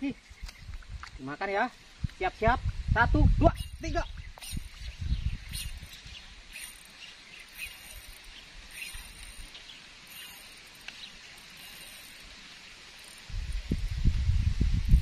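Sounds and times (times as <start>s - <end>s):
short high-pitched calls: 3.6s - 4.7s, 5.5s - 9.5s.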